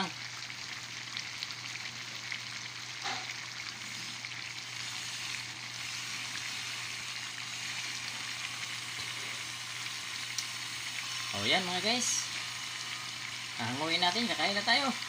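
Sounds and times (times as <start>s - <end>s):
food bubbling in a wok: 0.0s - 11.4s.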